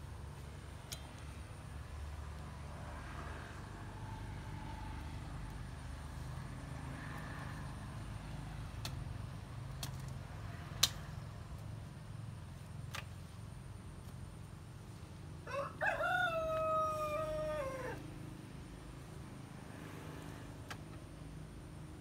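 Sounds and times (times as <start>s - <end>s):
rooster crowing: 15.4s - 18.1s.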